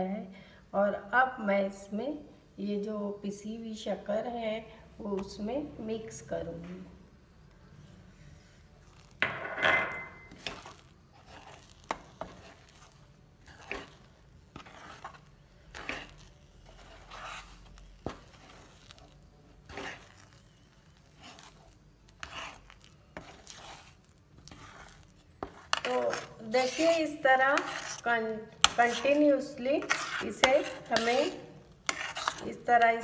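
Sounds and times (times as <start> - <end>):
metal spatula scraping paste: 10.2 - 33.0.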